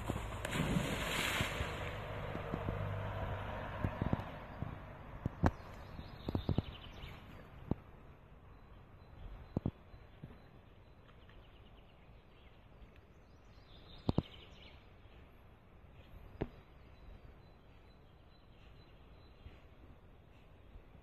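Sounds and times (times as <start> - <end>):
faint bird chirps: 15.9 - 20.9.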